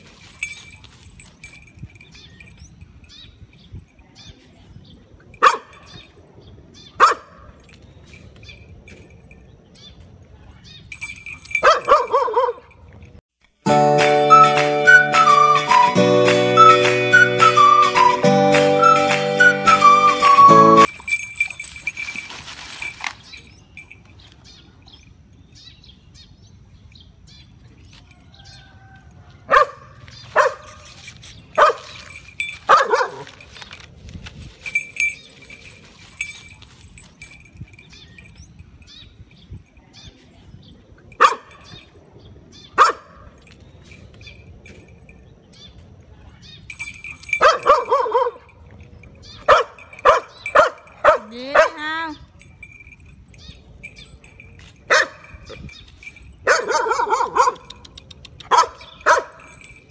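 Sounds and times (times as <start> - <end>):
dog barking: 5.4 - 5.9, 7.0 - 7.5, 11.6 - 12.7, 29.5 - 30.7, 31.6 - 31.8, 32.7 - 33.3, 41.2 - 41.6, 42.8 - 43.2, 47.4 - 48.5, 49.4 - 51.8, 54.9 - 55.2, 56.4 - 57.8, 58.4 - 59.4.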